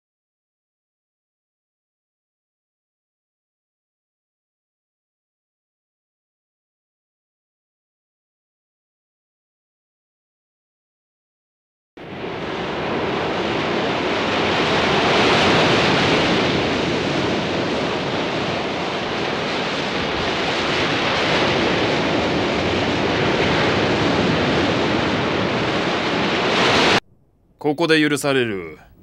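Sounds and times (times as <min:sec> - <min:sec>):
ocean waves breaking on rocks: 0:12.1 - 0:27.0.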